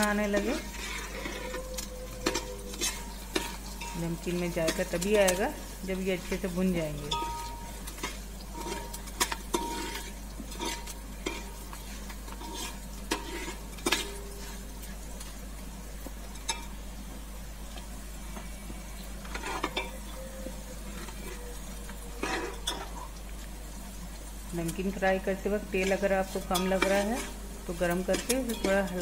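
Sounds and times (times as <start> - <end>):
spices sizzling in hot oil: 0.0 - 29.0
spoon scraping and clinking pot: 0.1 - 5.4, 7.1 - 14.6, 19.3 - 20.0, 22.2 - 23.1, 25.8 - 29.0.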